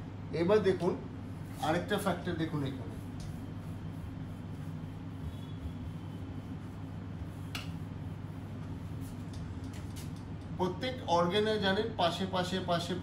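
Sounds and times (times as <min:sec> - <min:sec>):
low room hum: 0:00.0 - 0:13.0
eraser rubbing whiteboard: 0:01.4 - 0:10.1.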